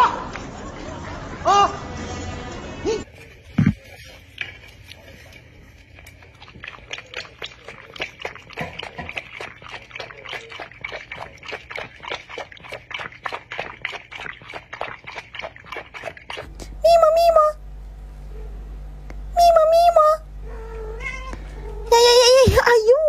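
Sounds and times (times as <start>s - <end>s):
dog lapping water: 3.7s - 17.1s.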